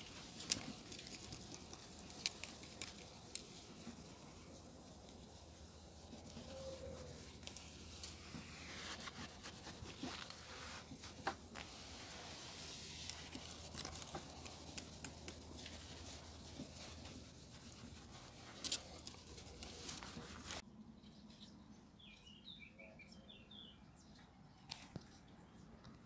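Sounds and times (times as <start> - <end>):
cloth scrubbing a wheel: 0.0 - 20.6.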